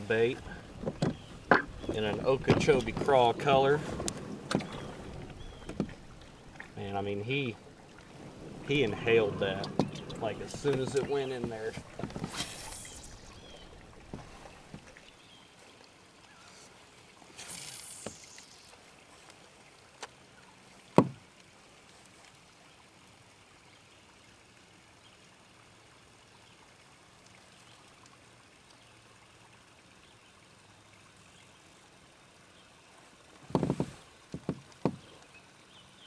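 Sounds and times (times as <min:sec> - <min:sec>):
open water background: 0:00.0 - 0:36.0
swish: 0:12.3 - 0:13.4.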